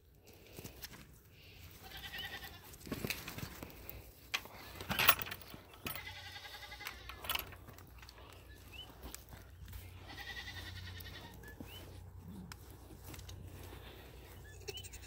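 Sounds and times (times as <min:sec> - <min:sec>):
scuffling noises: 0:00.0 - 0:15.0
goats bleating: 0:01.6 - 0:02.8, 0:05.7 - 0:07.7, 0:09.4 - 0:15.0.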